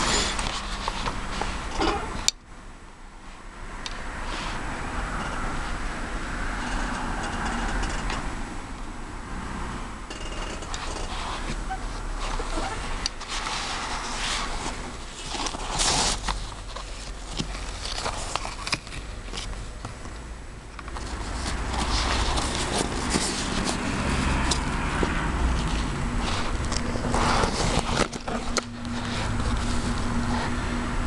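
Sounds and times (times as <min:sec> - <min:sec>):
carry case rustling: 0:20.8 - 0:30.1.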